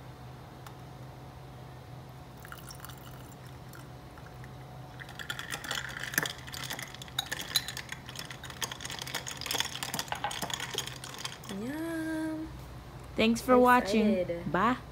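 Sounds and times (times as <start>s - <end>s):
liquid pouring into glass: 2.4s - 11.6s.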